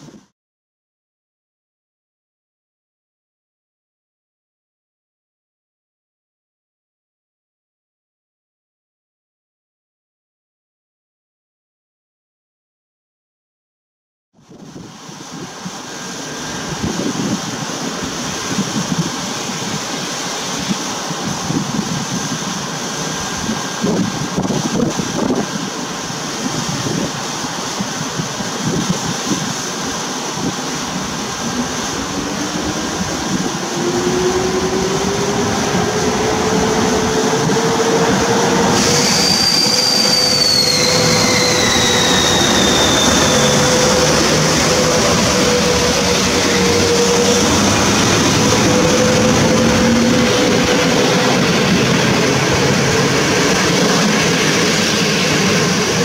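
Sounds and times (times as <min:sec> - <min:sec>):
electric locomotive whine: 0:14.5 - 0:56.0
locomotive passing whine: 0:15.0 - 0:56.0.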